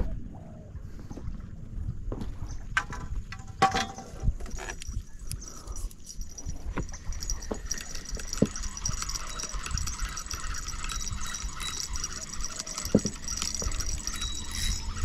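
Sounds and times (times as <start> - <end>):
fishing reel whirring: 4.6 - 15.0.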